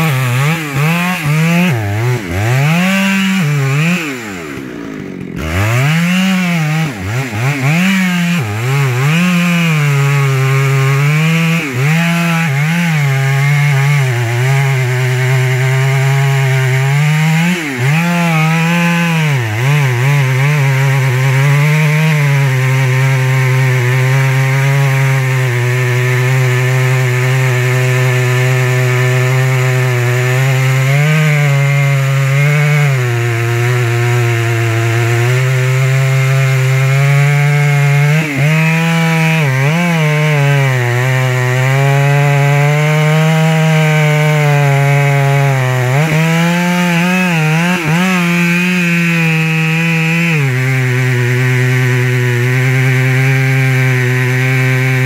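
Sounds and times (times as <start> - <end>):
chainsaw cutting wood: 0.0 - 55.0.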